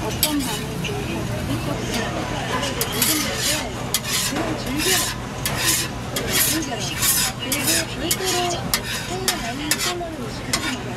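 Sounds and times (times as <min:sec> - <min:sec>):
metal spatula scraping griddle: 0:00.0 - 0:01.0, 0:01.6 - 0:10.9
faint voices talking: 0:00.0 - 0:10.9
food sizzling: 0:02.8 - 0:10.9.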